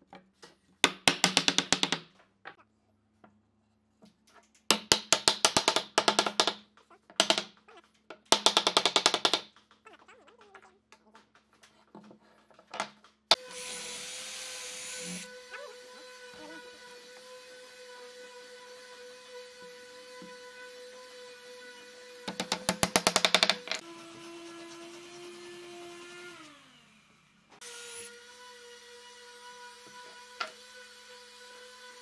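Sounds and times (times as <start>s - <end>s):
electric drill boring into wood: 13.3s - 28.9s.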